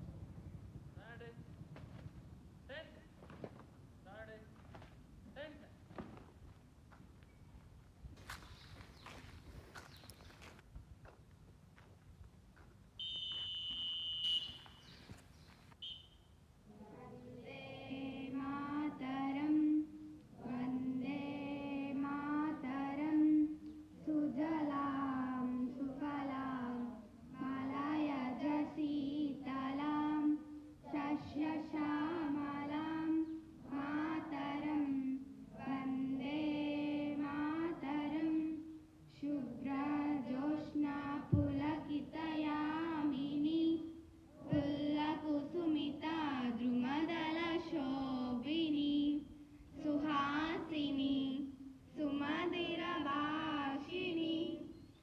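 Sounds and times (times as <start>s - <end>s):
children singing in unison: 16.7s - 54.8s.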